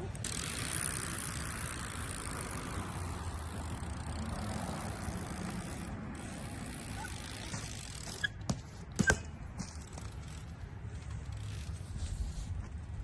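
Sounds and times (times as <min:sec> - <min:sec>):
bike clanking on metal rail: 0:07.0 - 0:10.5.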